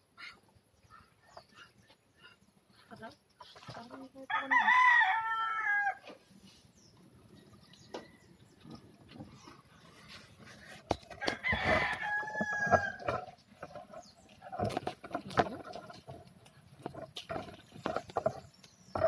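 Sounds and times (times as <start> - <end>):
rooster crowing: 4.3 - 6.0, 11.2 - 13.2.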